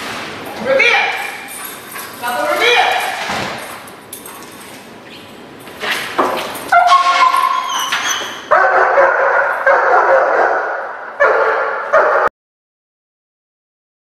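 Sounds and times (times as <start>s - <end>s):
dog barking hard: 8.4s - 12.3s.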